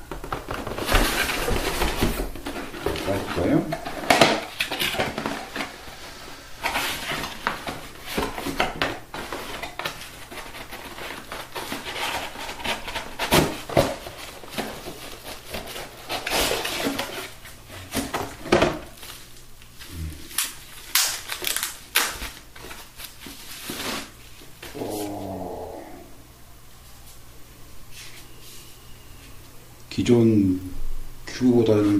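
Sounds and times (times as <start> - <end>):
cardboard box rustling and scraping: 0.5 - 18.5.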